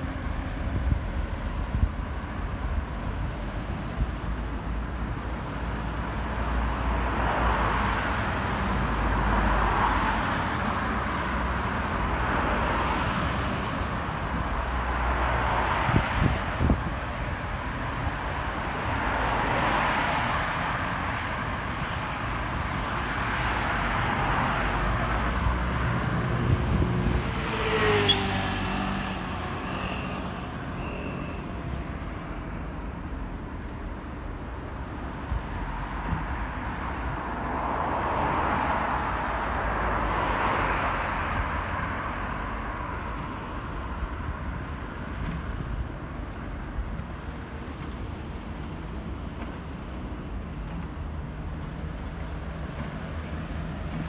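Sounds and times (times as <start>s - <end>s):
cars passing: 0.0s - 54.0s.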